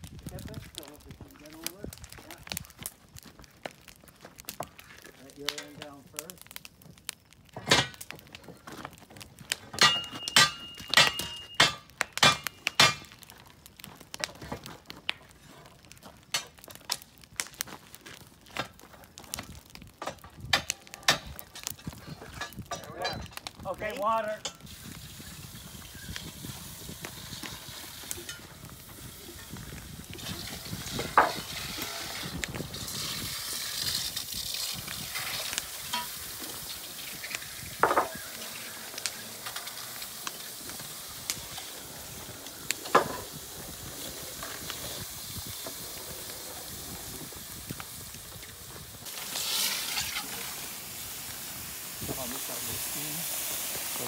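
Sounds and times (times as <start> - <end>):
sharp cracks: 0.7 - 24.7
water sizzling on hot iron: 9.8 - 13.5, 19.8 - 54.0.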